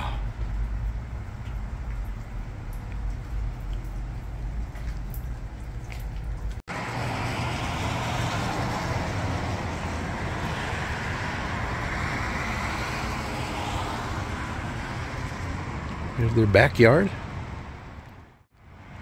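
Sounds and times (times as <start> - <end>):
road traffic: 0.0 - 19.0
tyres hissing on wet pavement: 6.7 - 16.2.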